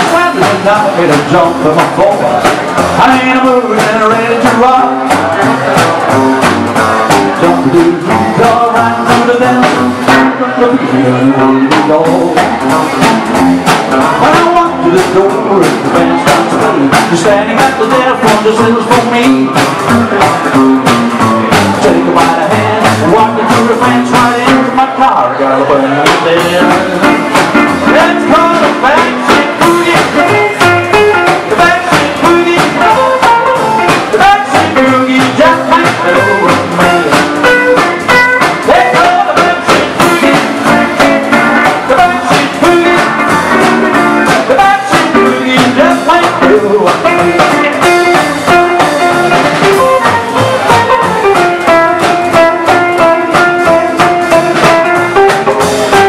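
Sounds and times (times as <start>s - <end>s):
live rock and roll band: 0.0s - 56.0s.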